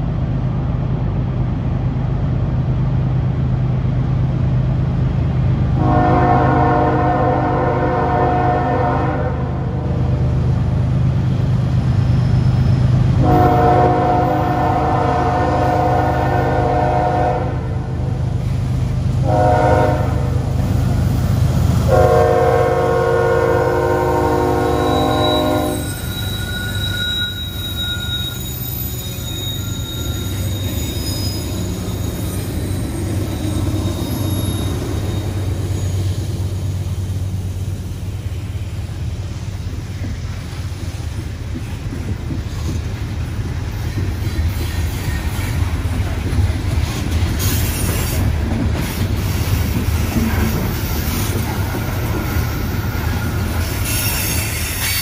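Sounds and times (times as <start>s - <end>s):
locomotive engines rumbling: 0.0s - 55.0s
locomotive horn blasts: 5.8s - 9.8s, 13.2s - 17.9s, 19.2s - 20.4s, 21.9s - 25.9s
thin wheel squeal: 24.7s - 36.9s, 52.3s - 55.0s.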